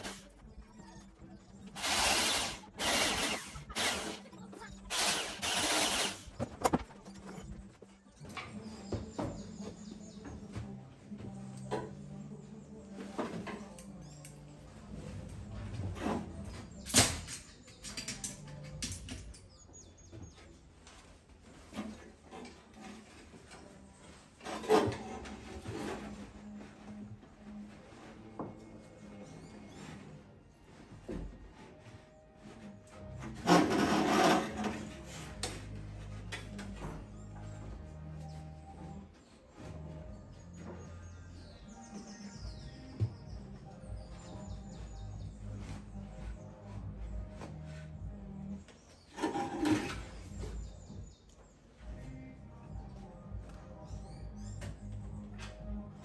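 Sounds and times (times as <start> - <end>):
hand drill boring into sheet steel: 1.8 - 4.2, 4.9 - 6.3.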